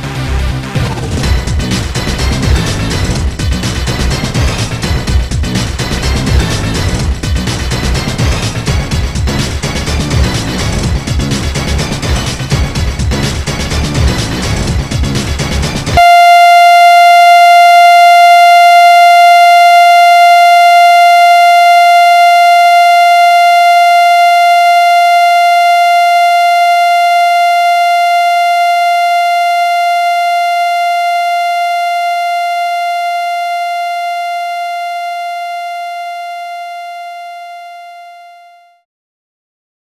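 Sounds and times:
electronic test tone: 0:16.0 - 0:38.8.

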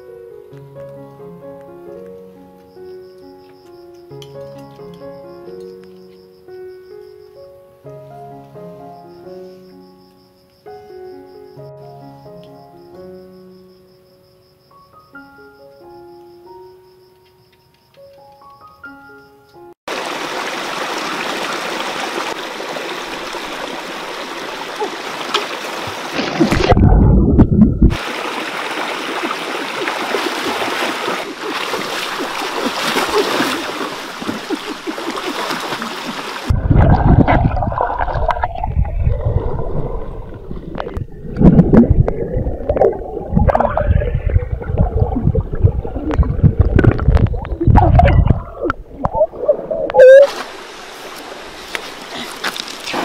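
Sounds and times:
stream water over rocks: 0:19.9 - 0:27.0, 0:27.9 - 0:53.0
wading splashing and sloshing: 0:19.9 - 0:53.0
deep splash: 0:25.1 - 0:49.7.

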